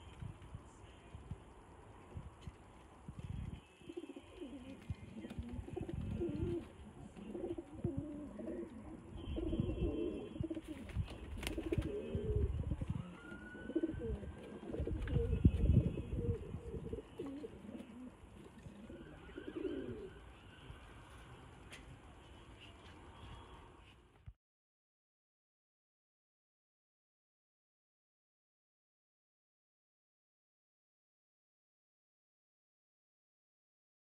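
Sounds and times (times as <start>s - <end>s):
pigeons cooing: 4.0s - 20.2s.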